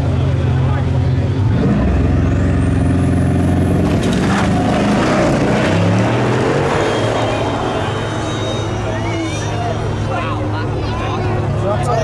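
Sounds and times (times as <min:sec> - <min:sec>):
car engine revving and accelerating: 0:01.4 - 0:08.2.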